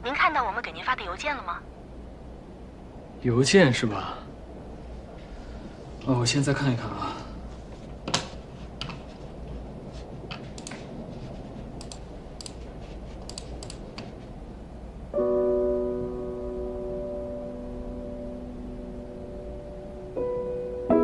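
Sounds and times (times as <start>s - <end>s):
computer keys clicking: 10.3s - 10.9s, 11.8s - 14.1s
held music chord: 15.2s - 21.0s.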